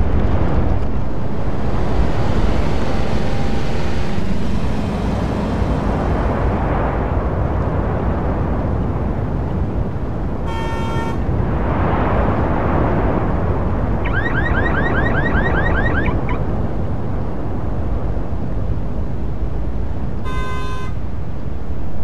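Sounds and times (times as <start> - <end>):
traffic rumble of engines and tyres: 0.0 - 22.0
car horn: 10.4 - 11.3, 20.2 - 21.0
car alarm chirping: 14.0 - 16.4.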